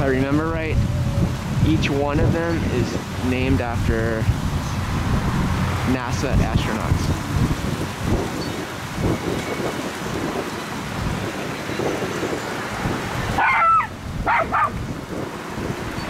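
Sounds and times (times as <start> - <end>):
wind buffeting microphone: 0.0 - 16.0
dog barking: 13.4 - 14.8.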